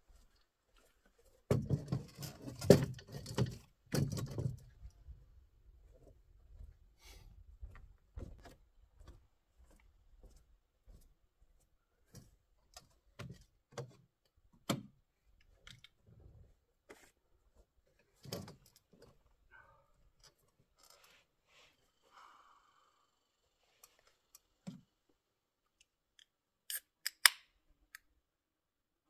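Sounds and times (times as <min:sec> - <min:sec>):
bare feet on wooden boards: 0:00.0 - 0:19.2
camp chair frame knocking and creaking: 0:01.5 - 0:04.7.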